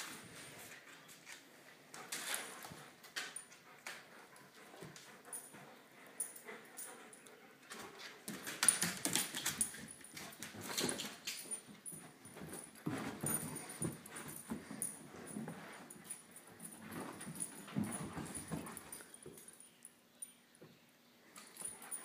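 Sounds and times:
dogs scuffling: 7.7s - 19.6s.

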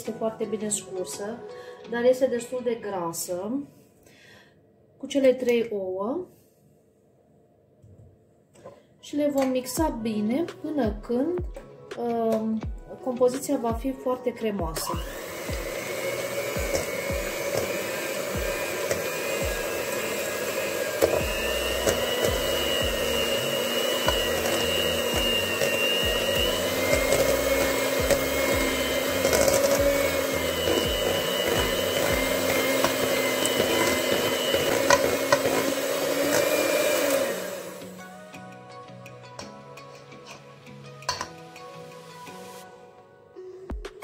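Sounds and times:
electric hand mixer whining: 14.8s - 38.1s.

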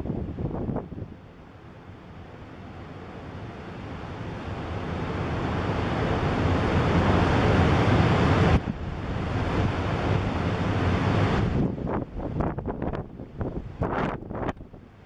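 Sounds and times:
surf breaking on a reef: 3.8s - 14.6s.

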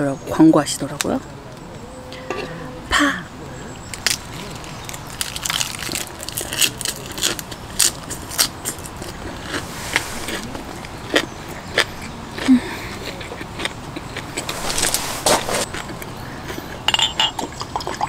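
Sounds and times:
crisp chewing crunches: 3.9s - 18.0s.

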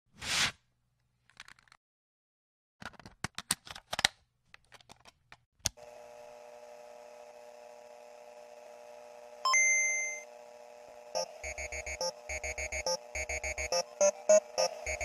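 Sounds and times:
loud high beep-like tone: 11.2s - 15.0s
sharp electronic clicks: 11.2s - 15.0s
synthesizer drone: 11.2s - 15.0s.

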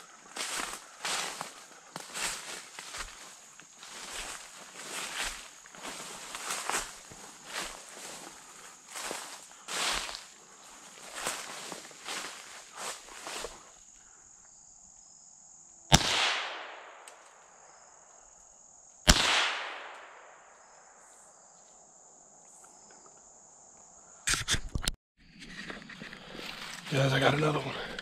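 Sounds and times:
leaves rustling underfoot: 0.0s - 13.9s, 25.3s - 28.0s
high insect drone: 0.0s - 16.0s, 16.9s - 19.1s, 20.2s - 24.3s
rifle shots echoing: 15.9s - 17.0s, 19.1s - 20.5s.

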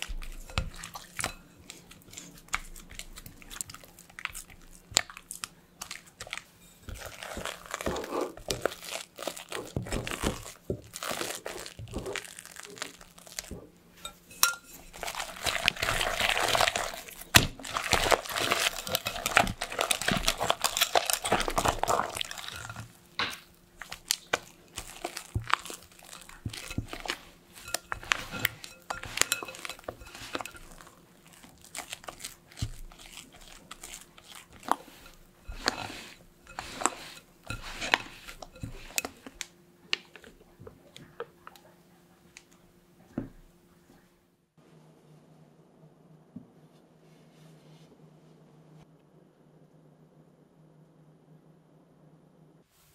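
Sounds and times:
whisking cream: 0.0s - 4.8s, 14.3s - 23.0s, 23.8s - 39.4s
spatula stirring custard in glass bowl: 0.0s - 40.3s.

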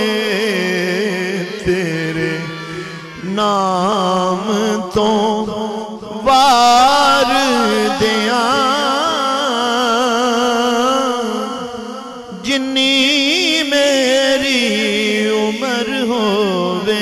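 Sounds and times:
man singing ornamented notes: 0.0s - 17.0s.

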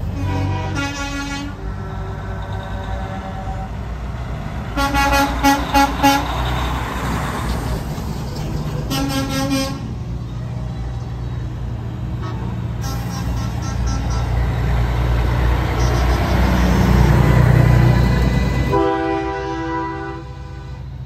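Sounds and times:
diesel truck engine running: 0.0s - 20.0s
truck air horn blasts: 0.1s - 4.0s, 4.7s - 6.4s, 8.9s - 10.0s, 12.2s - 14.5s, 15.7s - 17.0s, 18.6s - 21.0s.

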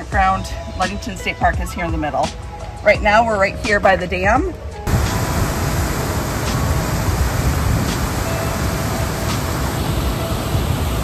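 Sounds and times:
water rushing through dam gates: 4.9s - 11.0s.

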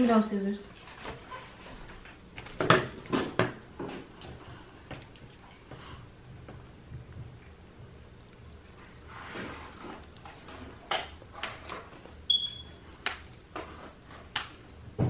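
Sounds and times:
sharp plastic clicks and snaps: 13.0s - 13.4s, 14.3s - 14.6s.

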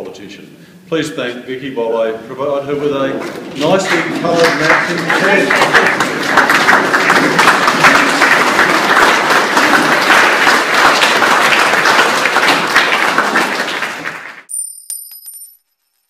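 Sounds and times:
audience clapping: 3.6s - 14.5s.

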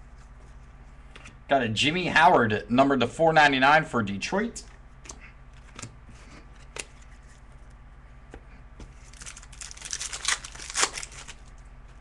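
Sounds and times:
foil wrapper tearing and crinkling: 9.0s - 11.5s.

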